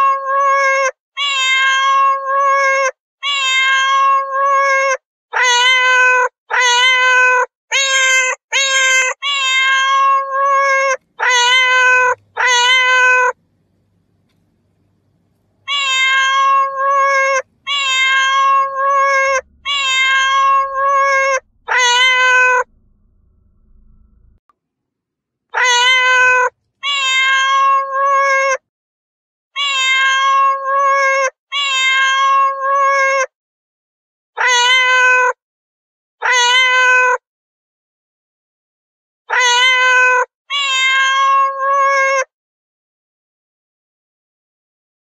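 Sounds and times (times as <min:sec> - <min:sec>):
cat meowing: 0:00.0 - 0:13.4, 0:15.6 - 0:22.8, 0:25.5 - 0:28.6, 0:29.6 - 0:33.3, 0:34.4 - 0:35.4, 0:36.2 - 0:37.2, 0:39.3 - 0:42.3.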